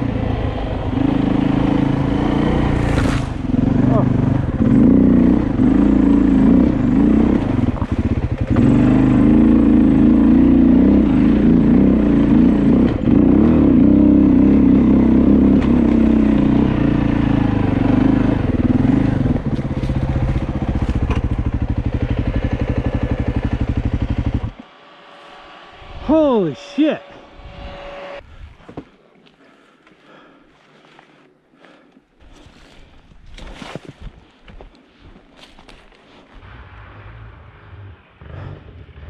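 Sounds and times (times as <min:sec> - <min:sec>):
dirt bike engine: 0:00.0 - 0:28.9.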